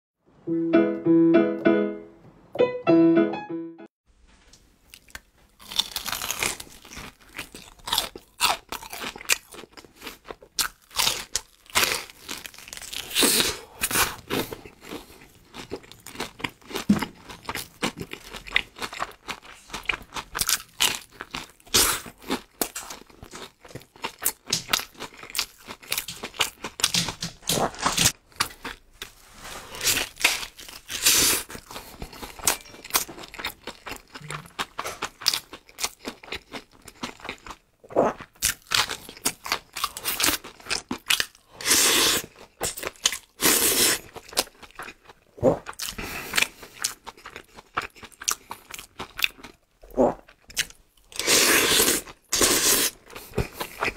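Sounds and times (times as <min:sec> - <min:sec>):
piano phrase: 0:00.4 - 0:03.9
crunching and chewing fried food: 0:04.9 - 0:53.9.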